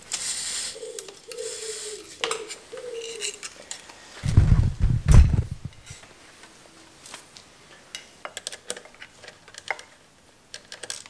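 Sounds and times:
loud low rumble: 0:04.3 - 0:05.8.

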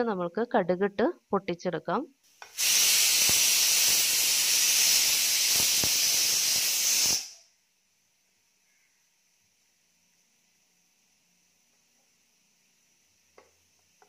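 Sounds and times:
seeds sizzling in hot oil: 0:02.3 - 0:07.5.

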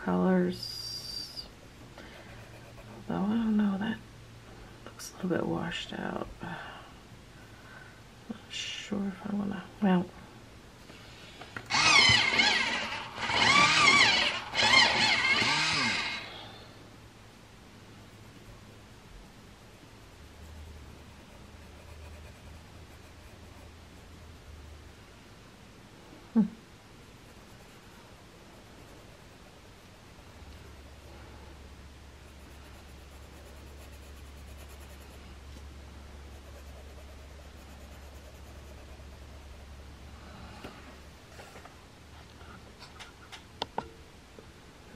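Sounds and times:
steady low hum: 0:00.0 - 0:44.9
pencil scratching on paper: 0:02.1 - 0:03.5, 0:20.3 - 0:24.3, 0:27.2 - 0:30.2, 0:32.2 - 0:35.4, 0:36.2 - 0:39.7
engine revving: 0:11.7 - 0:16.4.

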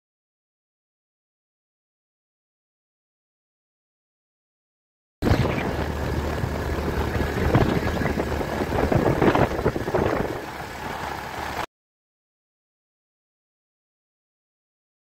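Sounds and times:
vehicle engine hum: 0:05.2 - 0:11.7
wind and road noise: 0:05.2 - 0:11.7.

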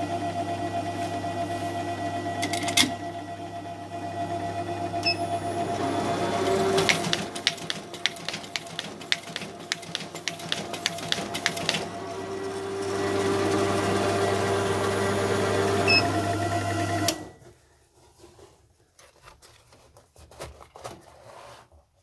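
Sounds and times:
folding machine motor hum: 0:00.0 - 0:17.5
paper feeding clicks: 0:06.4 - 0:12.6
folded paper rustling: 0:17.9 - 0:22.0.

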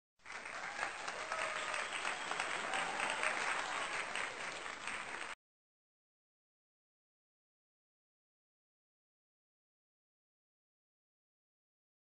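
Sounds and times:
crowd clapping: 0:00.2 - 0:05.4.

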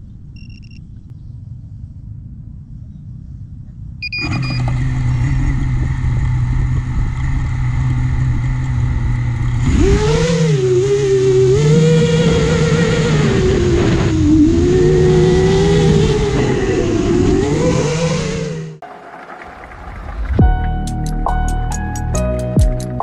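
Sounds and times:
short electronic beeps: 0:00.3 - 0:00.9, 0:04.0 - 0:04.8
drone motors whining: 0:04.0 - 0:07.8, 0:09.8 - 0:18.8.

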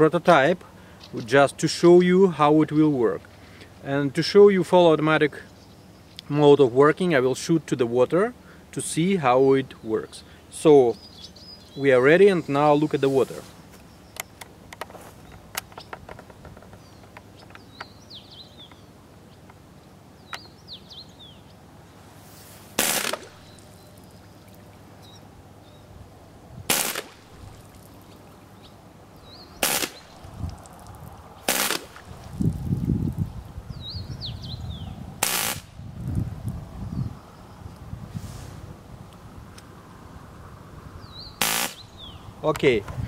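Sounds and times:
airgun firing bursts into water: 0:22.8 - 0:23.4, 0:26.7 - 0:27.3, 0:29.6 - 0:30.1, 0:31.5 - 0:32.0, 0:35.2 - 0:35.7, 0:41.4 - 0:41.8.

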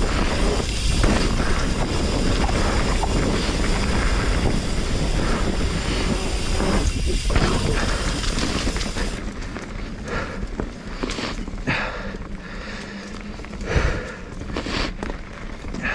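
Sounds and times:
wind on microphone: 0:00.0 - 0:09.2
bike clicks and rattles: 0:00.0 - 0:15.9
tyres rumbling: 0:00.0 - 0:15.9.

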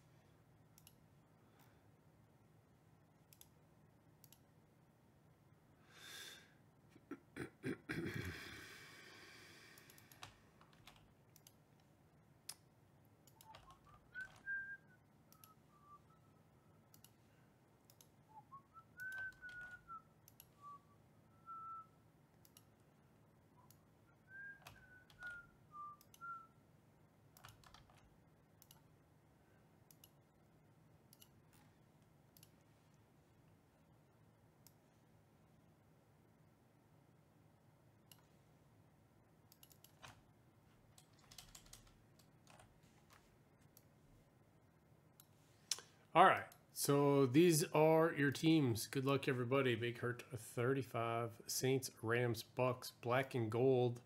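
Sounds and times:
faint mouse clicks: 0:00.8 - 0:01.0, 0:03.3 - 0:03.6, 0:04.2 - 0:04.5, 0:09.7 - 0:11.9, 0:12.5 - 0:14.5, 0:15.3 - 0:15.6, 0:16.9 - 0:17.3, 0:17.9 - 0:18.2, 0:19.0 - 0:20.6, 0:22.4 - 0:22.8, 0:26.0 - 0:26.2, 0:28.6 - 0:28.9, 0:29.9 - 0:30.2, 0:31.1 - 0:33.6, 0:34.6 - 0:34.9, 0:38.0 - 0:38.4, 0:39.5 - 0:40.2, 0:45.2 - 0:46.6
person whistling a tune: 0:14.1 - 0:16.4, 0:18.3 - 0:20.0, 0:20.6 - 0:21.9, 0:24.3 - 0:26.5.

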